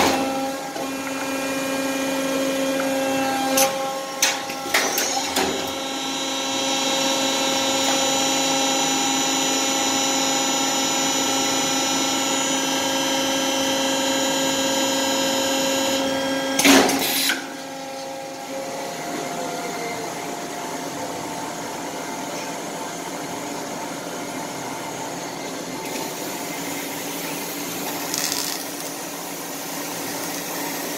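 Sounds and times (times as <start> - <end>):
record press machine whining: 24.9 - 30.9.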